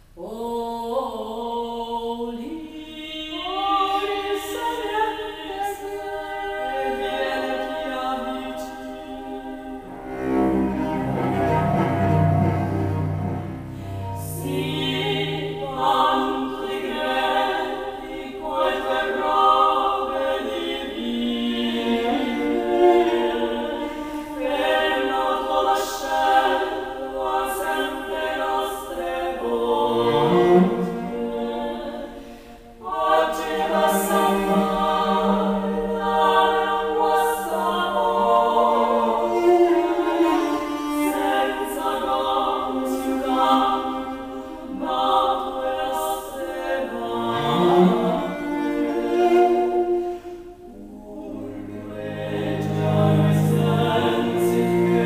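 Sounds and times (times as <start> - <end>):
women singing in harmony: 0.0 - 55.0
cello low notes: 9.0 - 18.2, 29.4 - 45.0, 46.9 - 55.0.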